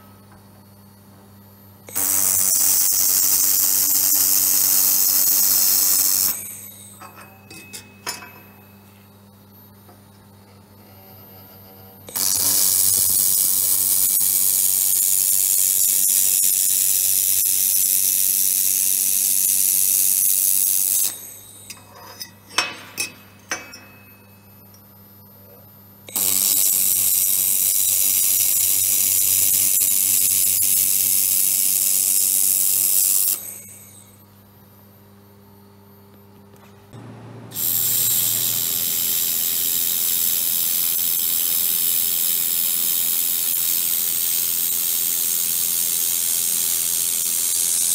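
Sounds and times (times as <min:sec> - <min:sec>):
laser welder hissing: 0:01.9 - 0:08.7, 0:11.4 - 0:24.4, 0:26.1 - 0:34.2, 0:37.5 - 0:47.9
low machine hum: 0:06.3 - 0:13.0, 0:21.1 - 0:26.2, 0:33.5 - 0:39.1.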